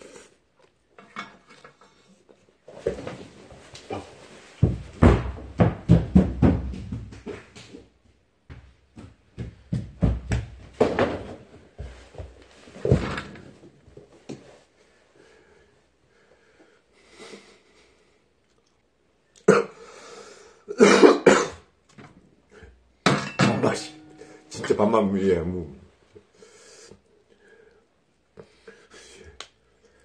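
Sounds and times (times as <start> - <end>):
man coughing: 20.7 - 21.7
dishes clattering: 23.1 - 24.6.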